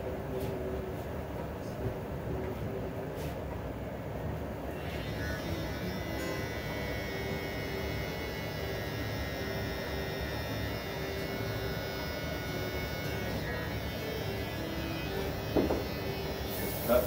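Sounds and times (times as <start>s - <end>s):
electric hair clippers buzzing: 4.7s - 17.0s.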